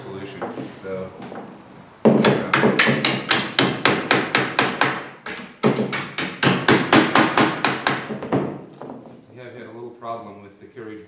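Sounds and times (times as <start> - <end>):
hammer tapping bolts into wood: 1.2 - 9.0.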